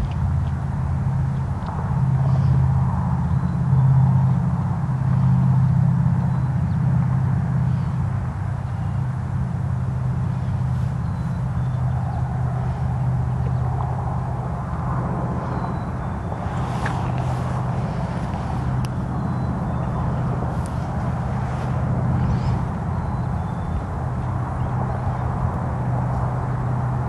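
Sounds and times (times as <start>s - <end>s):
siren rotor coasting hum: 0.0s - 27.0s
rough rumble: 6.8s - 27.0s.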